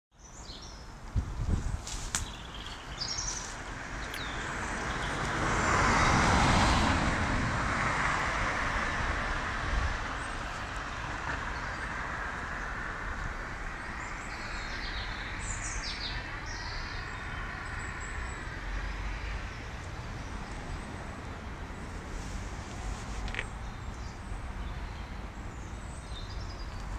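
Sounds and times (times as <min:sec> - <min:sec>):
birds chirping: 0:01.6 - 0:05.4, 0:13.7 - 0:21.1
vehicle passing: 0:03.0 - 0:25.6.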